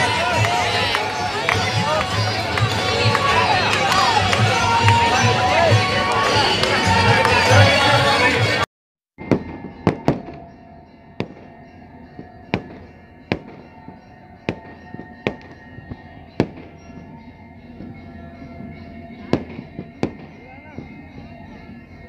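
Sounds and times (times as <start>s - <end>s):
fireworks bangs: 9.2s - 10.6s, 11.2s - 17.2s, 18.6s - 21.3s.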